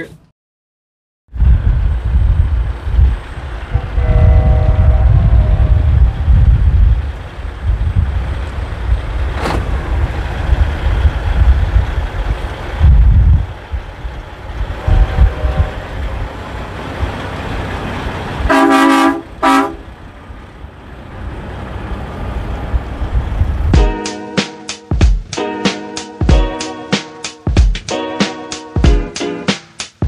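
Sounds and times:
steady low rumble: 0:01.3 - 0:24.0
vehicle horn honking: 0:03.7 - 0:06.2, 0:14.8 - 0:16.2, 0:18.5 - 0:19.8.

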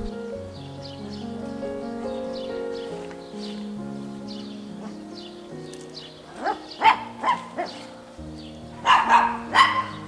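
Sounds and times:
background music: 0:00.0 - 0:10.0
dog barking: 0:06.3 - 0:08.0, 0:08.8 - 0:10.0.

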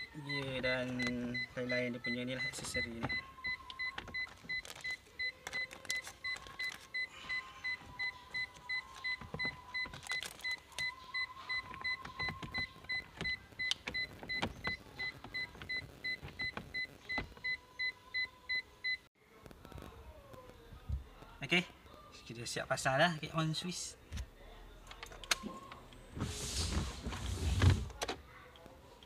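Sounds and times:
electronic warning beeps: 0:00.0 - 0:19.0.

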